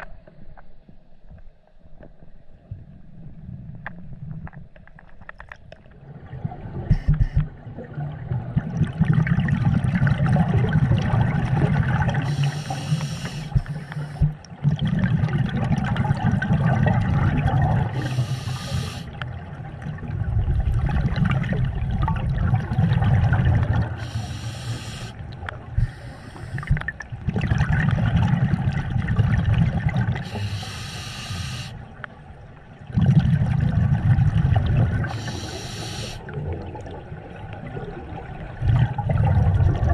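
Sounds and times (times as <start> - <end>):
regulator hissing inhalations: 12.2 - 14.3, 18.0 - 19.2, 24.0 - 25.2, 25.8 - 26.8, 30.2 - 31.8, 35.1 - 36.2.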